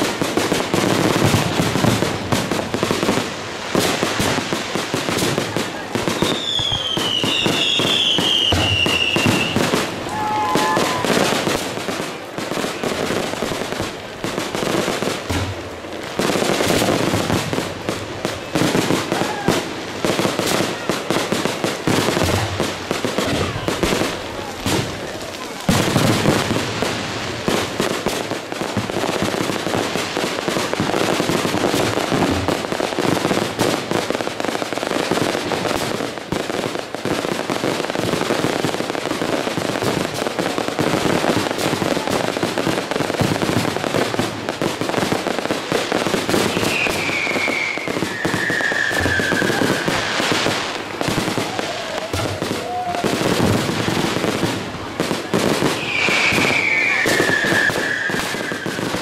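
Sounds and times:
fireworks bangs and crackling: 0:00.0 - 0:59.0
falling firework whistle: 0:06.0 - 0:11.6, 0:18.5 - 0:19.7, 0:46.3 - 0:53.8, 0:55.6 - 0:59.0.

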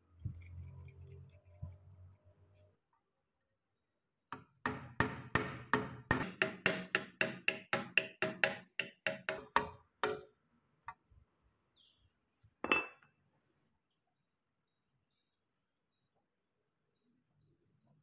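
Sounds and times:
hammer tapping steel punch: 0:04.4 - 0:10.3.

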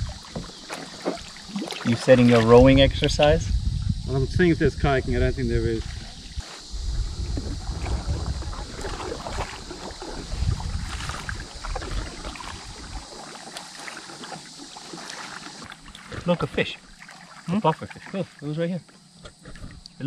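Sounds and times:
paddle strokes splashing water: 0:00.0 - 0:02.6, 0:05.8 - 0:18.6
wind buffeting microphone: 0:02.2 - 0:13.1.

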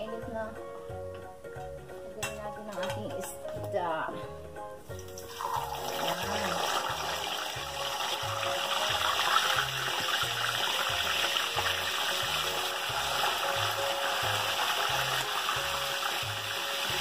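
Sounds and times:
background music with low beat: 0:00.0 - 0:17.0
fish sizzling in hot oil: 0:04.9 - 0:17.0.

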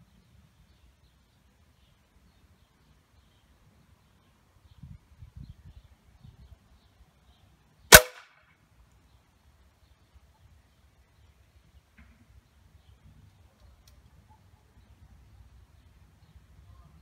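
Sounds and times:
pellet hitting metal trap: 0:07.9 - 0:08.2
air rifle shot: 0:07.9 - 0:08.3.

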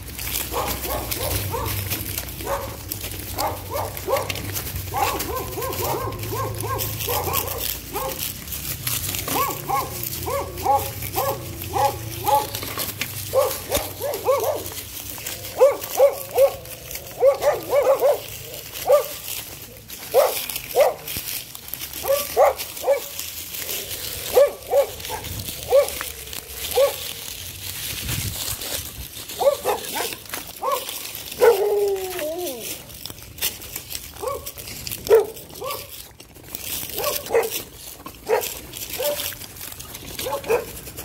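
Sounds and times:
dog barking: 0:00.4 - 0:08.3, 0:09.2 - 0:14.8, 0:15.5 - 0:19.2, 0:20.1 - 0:21.1, 0:22.0 - 0:23.2, 0:24.2 - 0:26.1, 0:26.7 - 0:27.1, 0:29.4 - 0:32.0, 0:34.1 - 0:36.0, 0:36.9 - 0:39.3, 0:40.2 - 0:40.8.

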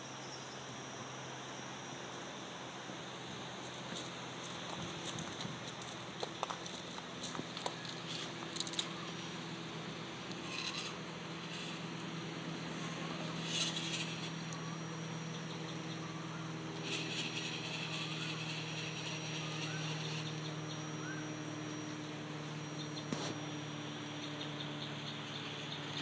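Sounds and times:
electric motor and drivetrain whining: 0:00.9 - 0:26.0.

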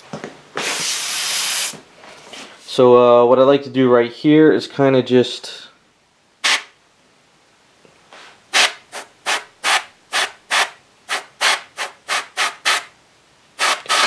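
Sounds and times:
airbrush spraying hiss: 0:00.6 - 0:01.8, 0:06.4 - 0:06.7, 0:08.5 - 0:12.9, 0:13.6 - 0:14.0.

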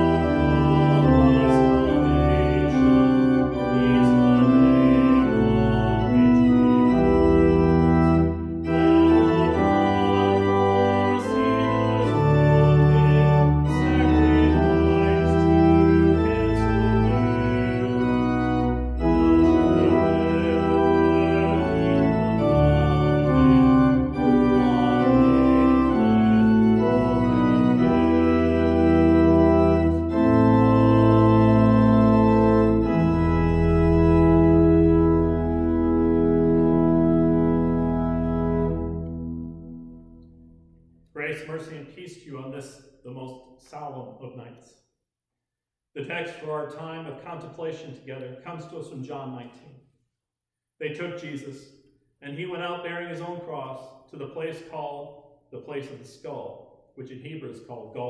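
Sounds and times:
organ playing sustained chords: 0:00.0 - 0:42.7.

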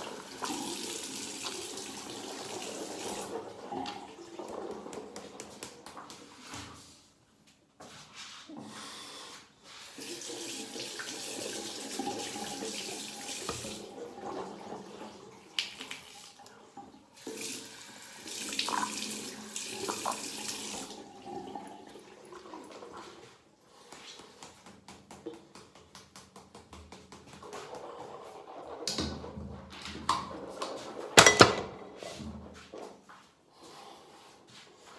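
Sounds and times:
tap running into a sink: 0:12.0 - 0:13.8.

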